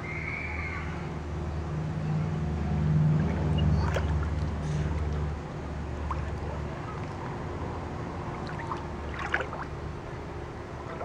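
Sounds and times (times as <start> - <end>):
steady low hum: 0.0 - 11.0
water sloshing in a pool: 2.6 - 11.0
short splash: 8.4 - 9.7.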